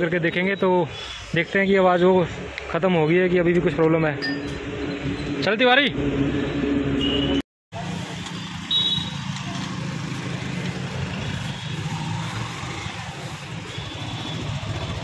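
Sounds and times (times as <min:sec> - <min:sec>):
street noise: 0:00.0 - 0:15.0
motorcycle engine idling: 0:08.8 - 0:15.0.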